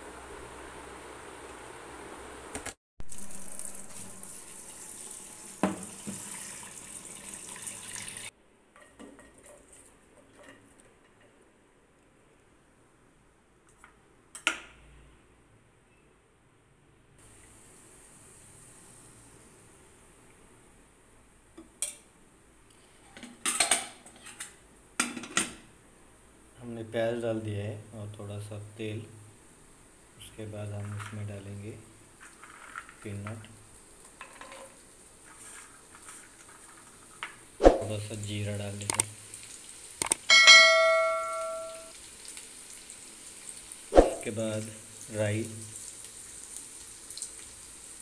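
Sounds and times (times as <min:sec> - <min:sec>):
tap water running into bowl: 0:03.1 - 0:08.3
metal utensil knocking on frying pan: 0:40.3 - 0:41.9.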